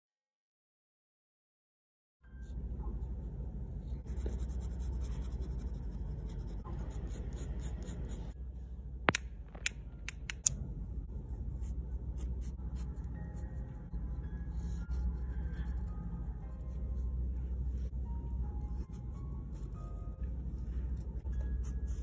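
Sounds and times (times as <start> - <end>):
pen nib scratching on paper: 4.0 - 8.4
sharp clicks: 9.1 - 10.6.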